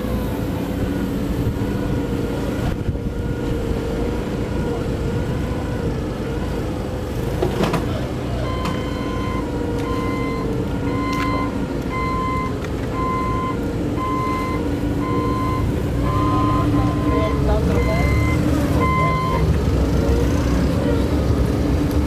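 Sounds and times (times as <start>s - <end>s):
forklift engine running: 0.0s - 22.0s
reversing alarm beeping: 8.4s - 19.5s.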